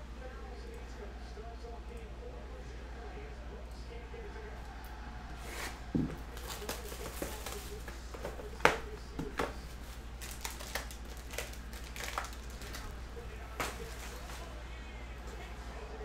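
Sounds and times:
steady low hum: 0.0 - 16.0
foil wrappers crinkling: 5.9 - 14.6.

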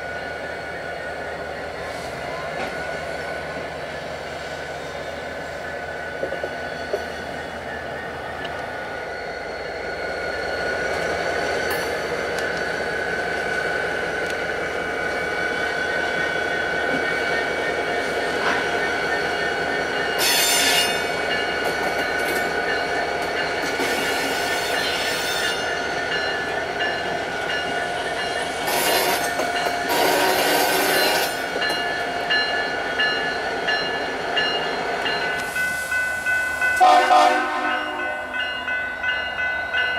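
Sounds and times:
diesel locomotive engines: 0.0 - 39.9
steel wheel squeal: 18.4 - 21.4, 23.4 - 26.9, 27.5 - 36.8.

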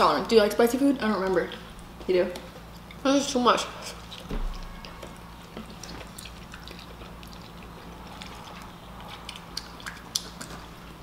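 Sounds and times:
noodles slurped and chewed: 4.8 - 11.0
wet mouth clicks: 5.8 - 10.7.

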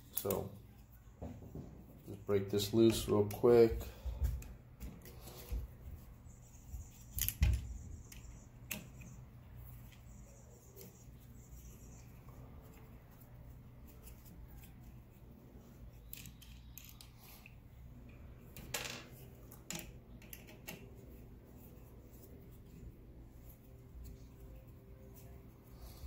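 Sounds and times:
small metallic clicks: 0.0 - 0.4, 15.9 - 18.8, 19.5 - 20.9
faint low hum: 0.0 - 26.0.

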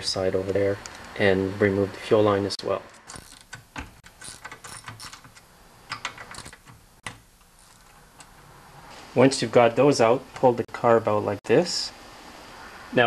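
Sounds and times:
ratchet wrench clicking: 3.0 - 6.8.

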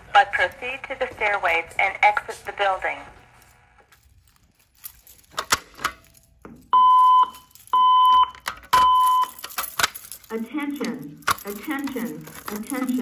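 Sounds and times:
fire alarm evacuation beeps: 6.7 - 9.5.

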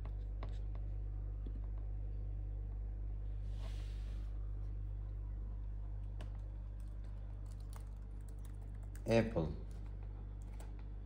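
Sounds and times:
steady low hum: 0.0 - 11.0
laptop keyboard typing: 6.0 - 11.0.

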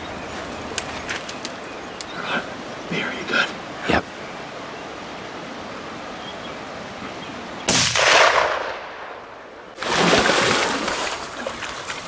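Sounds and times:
steady outdoor hiss: 0.0 - 12.0
rifle shot: 7.7 - 9.1.

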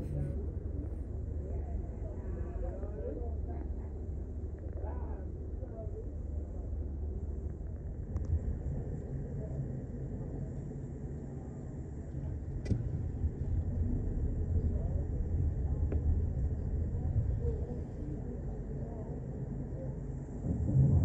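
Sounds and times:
faint voices: 8.6 - 21.0.

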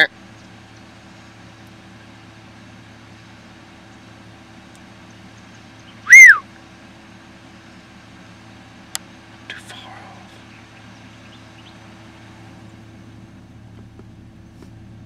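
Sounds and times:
faint low hum: 0.0 - 15.0
whistle-like call: 6.0 - 6.5.

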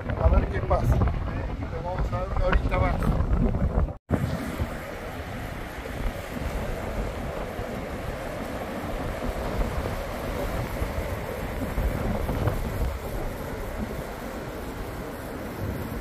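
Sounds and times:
wind buffeting microphone: 0.0 - 16.0
surf breaking on beach: 4.1 - 16.0.

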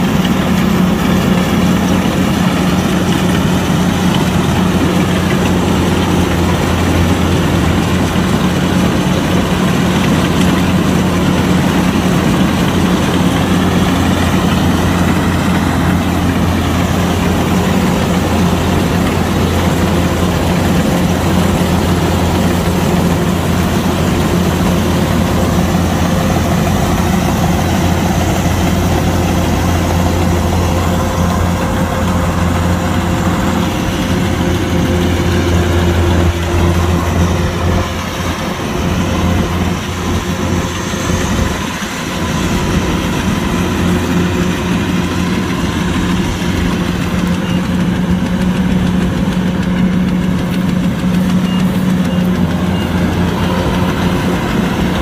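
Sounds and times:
diesel engine humming: 0.0 - 55.0.

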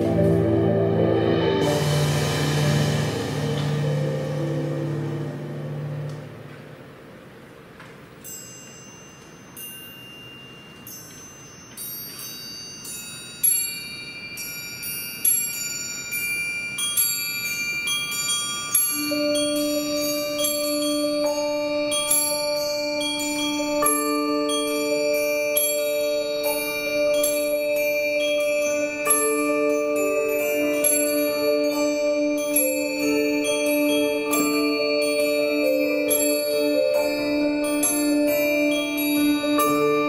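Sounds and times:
low held mallet chord: 0.0 - 7.1, 18.1 - 40.0
high bell-like struck notes: 0.0 - 7.2, 8.2 - 40.0
lower ringing notes: 0.0 - 7.5, 8.3 - 40.0.

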